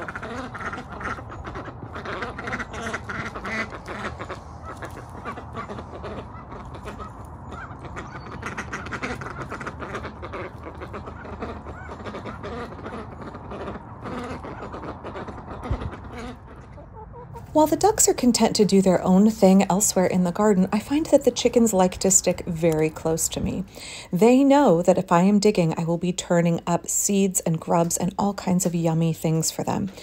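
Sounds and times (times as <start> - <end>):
ducks quacking: 0.0 - 17.5.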